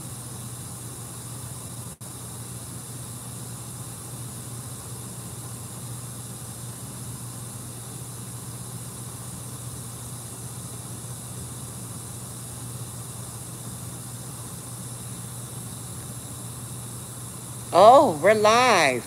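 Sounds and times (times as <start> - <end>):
even hiss: 15.1 - 19.0.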